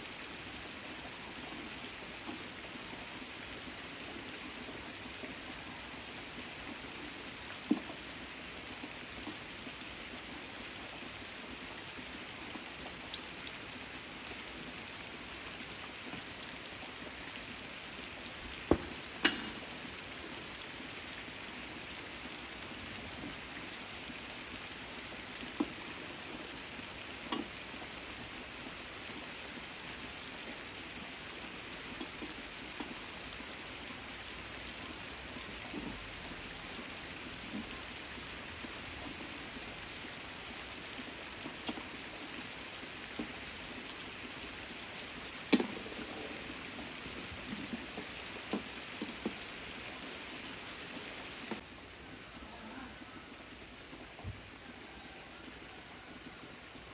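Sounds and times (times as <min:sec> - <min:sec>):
rain on leaves: 0:00.0 - 0:56.9
loud single raindrops: 0:18.3 - 0:20.6, 0:27.3 - 0:27.6, 0:44.8 - 0:49.5.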